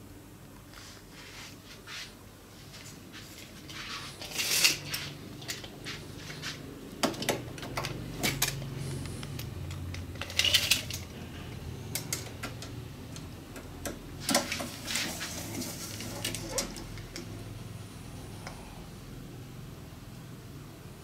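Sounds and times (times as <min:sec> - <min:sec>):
objects clicking and scraping: 0:03.4 - 0:12.8, 0:13.8 - 0:17.3.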